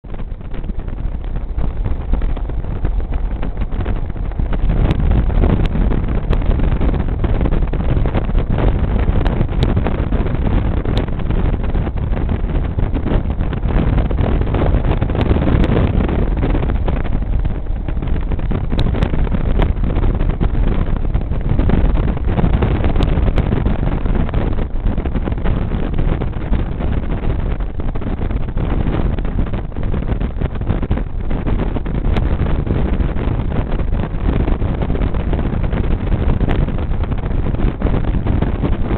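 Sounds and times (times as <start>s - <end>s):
motorcycle engine rumble: 0.0s - 38.9s
wind rushing over microphone: 0.0s - 38.9s.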